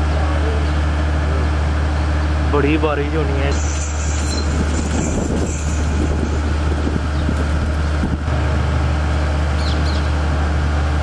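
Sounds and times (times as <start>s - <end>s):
wind buffeting microphone: 3.8s - 8.3s.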